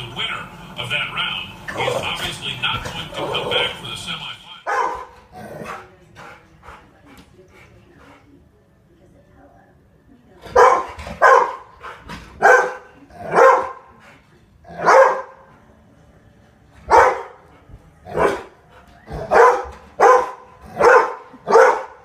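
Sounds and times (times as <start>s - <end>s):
dog barking: 4.6s - 5.9s, 10.5s - 13.9s, 14.7s - 15.5s, 16.8s - 17.5s, 18.1s - 22.0s.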